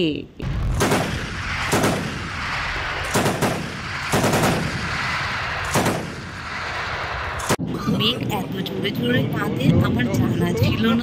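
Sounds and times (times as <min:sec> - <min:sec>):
explosions and gunfire bangs: 0:00.4 - 0:07.8
steady rushing noise: 0:00.8 - 0:11.0.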